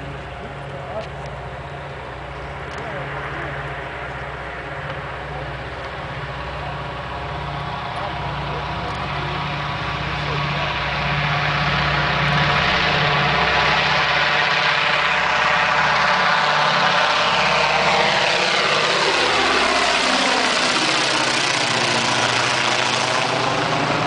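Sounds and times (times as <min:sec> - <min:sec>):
propeller aircraft engines roaring: 0:00.0 - 0:24.0.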